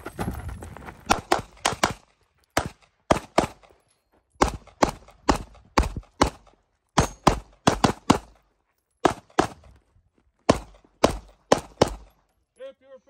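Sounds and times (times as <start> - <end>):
pistol shots with echo: 1.1 - 3.7, 4.4 - 8.4, 9.0 - 9.7, 10.5 - 12.2.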